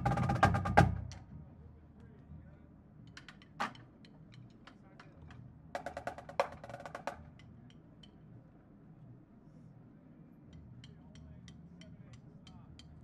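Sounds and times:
drum stick and rim clicks: 7.3 - 8.2, 10.5 - 13.0.

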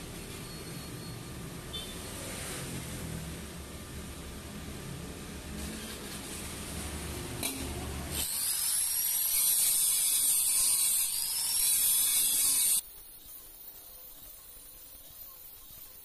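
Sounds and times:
angle grinder whining: 7.4 - 12.8.

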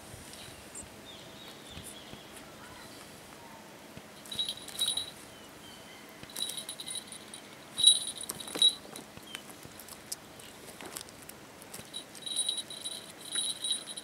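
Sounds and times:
high steady ringing: 4.2 - 5.2, 6.2 - 9.1, 11.8 - 14.0.

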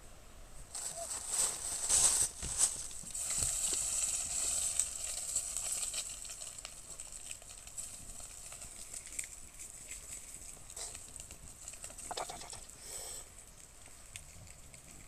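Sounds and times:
fire crackles and pops: 0.7 - 15.0
fish sizzling in a frying pan: 4.0 - 8.6.

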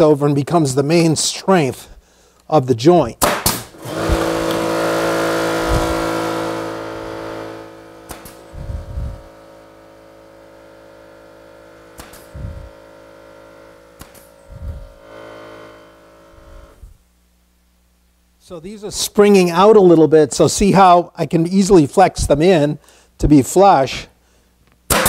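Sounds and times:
nail gun firing into wood: 3.2 - 5.0, 8.0 - 8.5, 11.9 - 12.4, 13.9 - 14.4
air compressor motor running: 3.5 - 17.1.

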